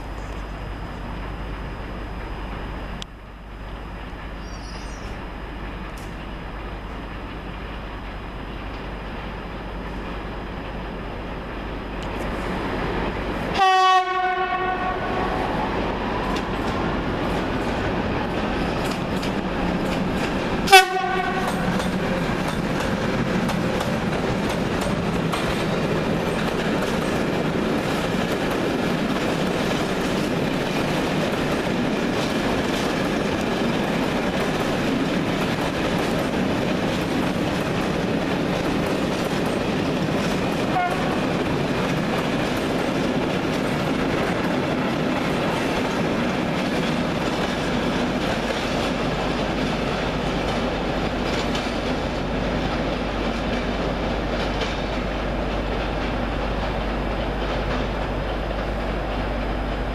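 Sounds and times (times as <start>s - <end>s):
locomotive horn blasts: 13.5s - 15.4s, 20.6s - 21.9s, 40.7s - 41.2s
freight wagon wheels rumbling: 14.7s - 59.9s.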